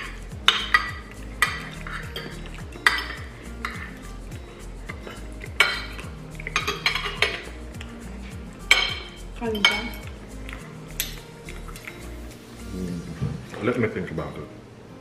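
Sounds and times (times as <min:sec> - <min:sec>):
cutlery clinking on plates: 0:00.0 - 0:04.0, 0:04.9 - 0:07.6, 0:08.7 - 0:12.0.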